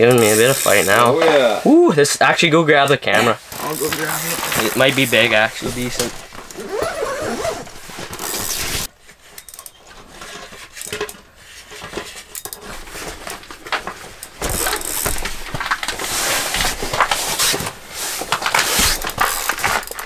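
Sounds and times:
fishing reel gears clicking: 0.1s - 1.1s, 3.5s - 5.2s, 8.2s - 8.8s, 14.5s - 15.2s, 19.0s - 20.0s
clothing rustling: 3.5s - 8.9s, 11.4s - 20.0s.

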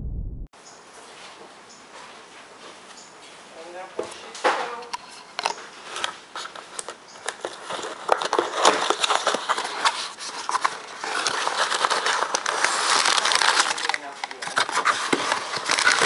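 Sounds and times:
cardboard and tape crackling: 4.8s - 16.0s
cardboard box being torn open: 7.4s - 16.0s.

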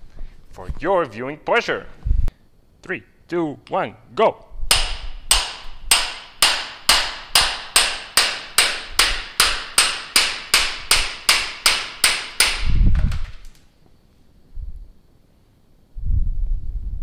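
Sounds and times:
hammer striking chisel on metal: 4.7s - 12.7s.

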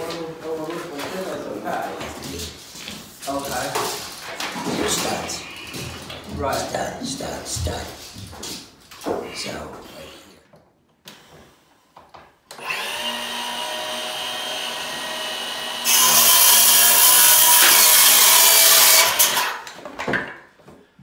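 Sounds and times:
circular saw cutting wood: 12.6s - 19.6s.

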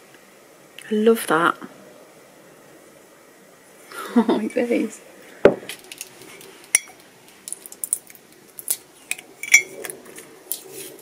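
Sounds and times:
ceramic mugs clinking: 6.7s - 7.0s, 9.1s - 9.8s.

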